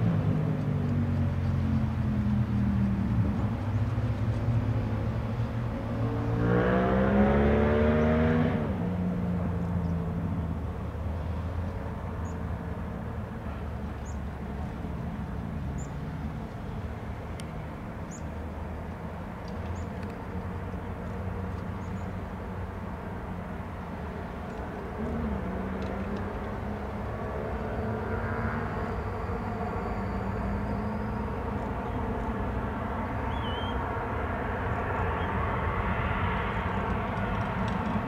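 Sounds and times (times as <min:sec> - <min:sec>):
vehicle engine revving and rumbling: 0:00.0 - 0:38.0.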